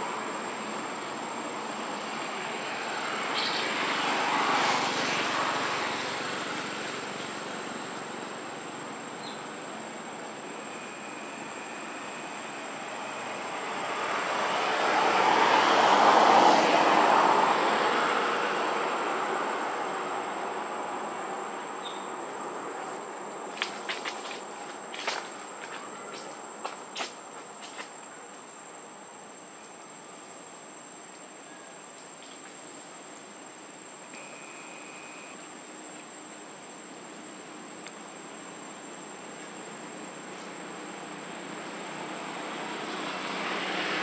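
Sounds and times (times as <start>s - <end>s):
insects droning: 0.0s - 44.0s
thin high whine: 10.4s - 13.8s, 34.1s - 35.5s.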